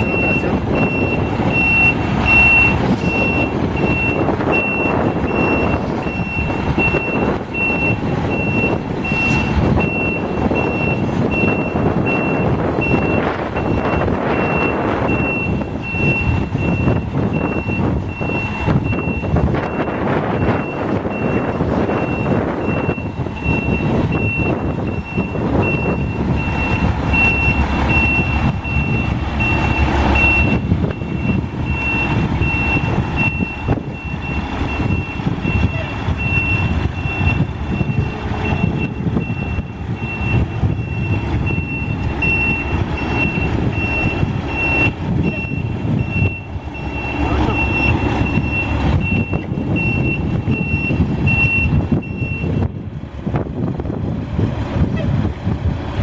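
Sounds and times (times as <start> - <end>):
truck reversing alarm beeping: 0.0 - 52.8
diesel engine running: 0.0 - 56.0.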